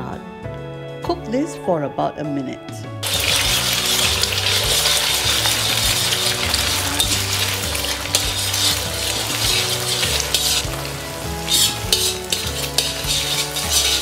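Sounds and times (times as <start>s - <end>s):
eggs sizzling in a wok: 3.0s - 14.0s
metal spatula scraping: 3.0s - 14.0s.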